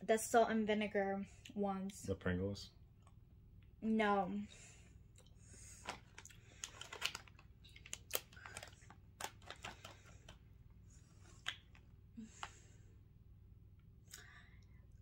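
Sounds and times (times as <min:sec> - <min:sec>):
plastic chip bag crinkling: 0:05.8 - 0:10.4.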